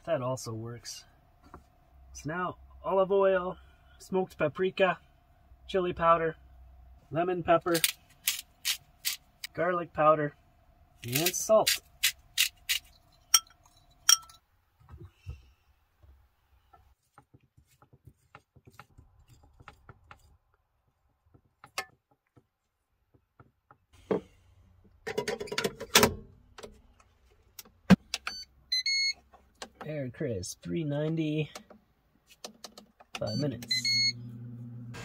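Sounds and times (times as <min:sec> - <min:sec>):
spoon clinking: 0:13.2 - 0:14.4.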